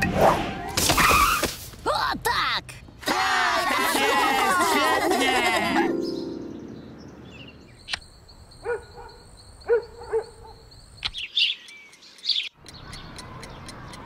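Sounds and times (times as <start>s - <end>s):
birds chirping: 5.7s - 14.0s
clock ticking: 11.7s - 14.0s.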